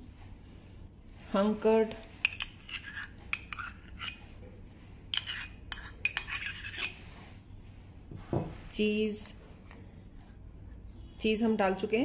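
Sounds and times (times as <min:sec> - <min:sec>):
metal spoon clinking ceramic cup: 0:02.2 - 0:04.2.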